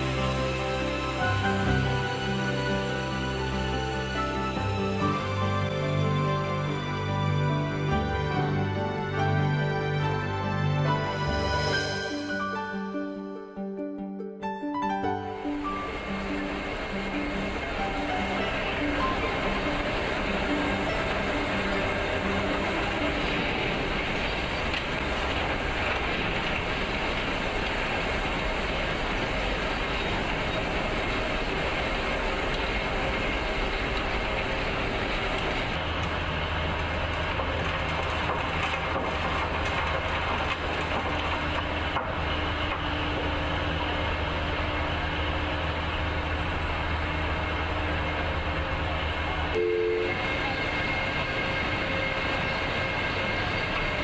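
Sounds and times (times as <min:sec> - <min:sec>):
tunnelling machine running: 0:15.1 - 0:54.0.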